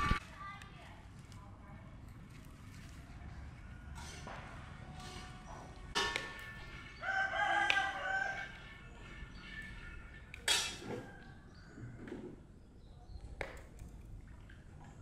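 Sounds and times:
rooster crowing: 7.0 - 8.6.

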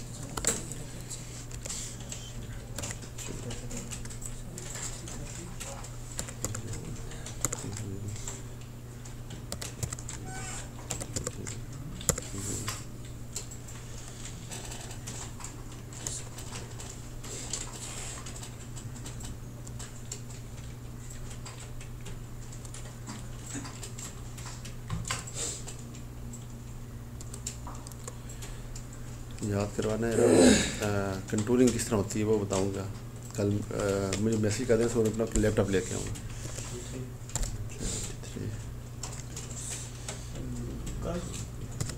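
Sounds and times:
keyboard and mouse clicks: 0.0 - 0.8, 1.5 - 26.6, 27.2 - 29.5, 39.0 - 41.9
steady low hum: 0.0 - 41.9.

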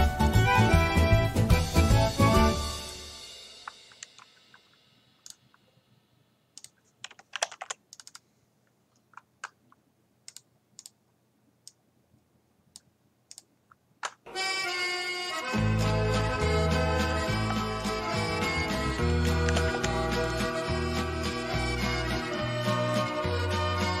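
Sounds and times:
background music: 0.0 - 5.4, 14.3 - 24.0
music track: 0.0 - 5.5, 14.3 - 24.0
keyboard and mouse clicks: 3.6 - 5.6, 6.6 - 8.3, 8.9 - 11.0, 11.6 - 11.8, 12.7 - 14.3, 19.2 - 20.0.

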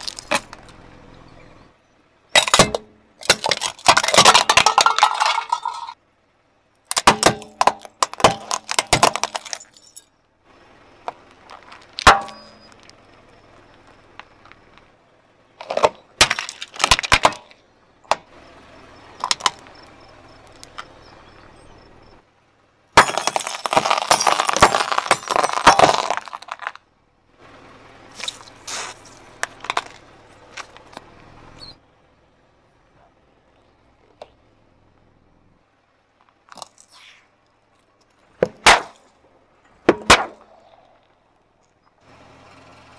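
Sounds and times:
tyre crushing objects: 6.9 - 9.8, 15.6 - 17.6, 23.0 - 26.8.

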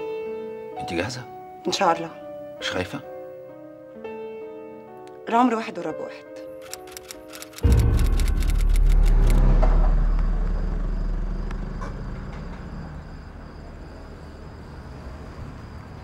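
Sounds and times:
ticking background music: 5.0 - 10.6
traffic rumble: 7.6 - 16.0.

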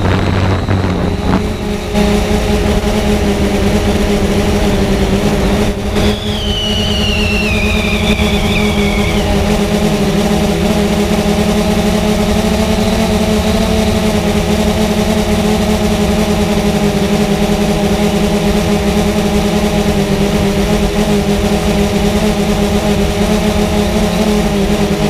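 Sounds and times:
high falling whine: 0.0 - 16.9
drone propellers buzzing: 0.0 - 25.0.

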